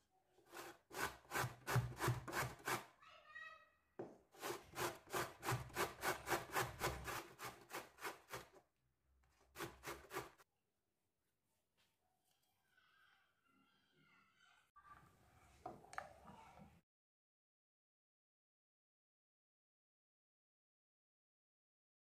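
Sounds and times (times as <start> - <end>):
vegetable grating on metal grater: 0.5 - 2.9, 4.4 - 8.6, 9.5 - 10.4.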